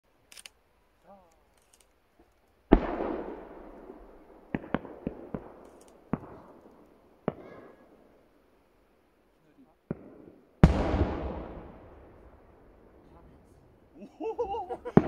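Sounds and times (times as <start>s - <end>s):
firework cracks: 2.6s - 8.2s, 9.9s - 13.2s.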